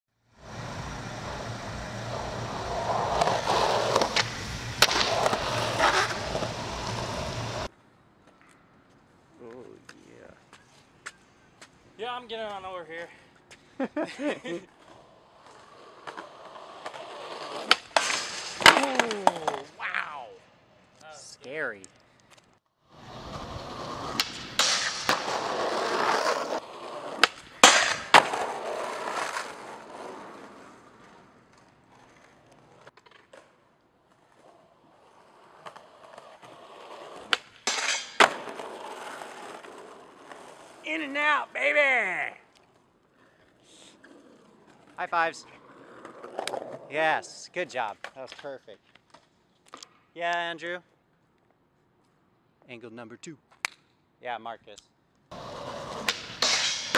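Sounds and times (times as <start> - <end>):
skateboard wheels rolling on asphalt: 0.2 - 9.2, 10.2 - 20.0, 20.6 - 49.7, 55.2 - 56.9
skateboard clacks: 1.2 - 7.7, 15.5 - 19.7, 23.8 - 34.5, 35.4 - 40.6, 55.3 - 56.9.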